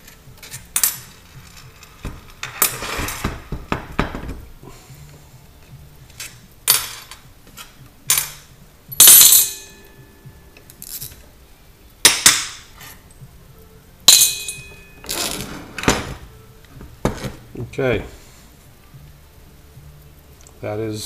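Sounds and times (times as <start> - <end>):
metal clinking on metal workbench: 0.0 - 4.4, 6.1 - 10.0, 14.1 - 16.3.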